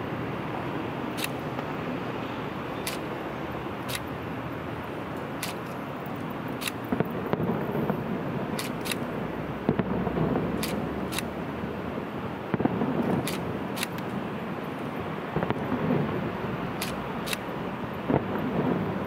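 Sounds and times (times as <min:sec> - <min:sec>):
distant city traffic rumble: 0:00.0 - 0:19.0
sharp clicks: 0:01.1 - 0:01.4, 0:02.8 - 0:03.1, 0:03.8 - 0:04.1, 0:05.3 - 0:05.8, 0:06.6 - 0:07.0, 0:08.6 - 0:09.1, 0:10.6 - 0:11.3, 0:13.2 - 0:14.1, 0:16.8 - 0:17.5
distant fireworks popping: 0:05.1 - 0:11.8, 0:12.4 - 0:19.0.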